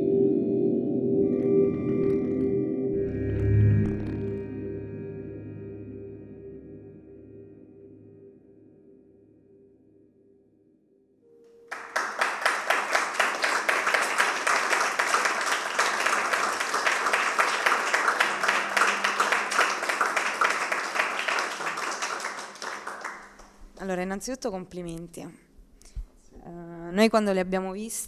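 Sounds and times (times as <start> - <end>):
audience applause: 11.7 - 23.6.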